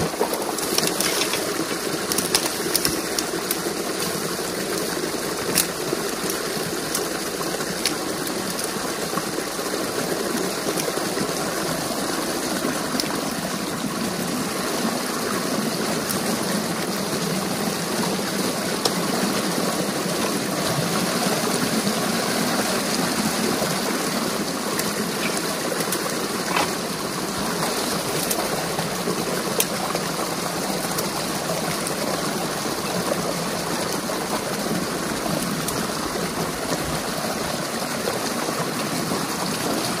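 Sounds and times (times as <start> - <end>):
water rushing and splashing: 0.0 - 40.0.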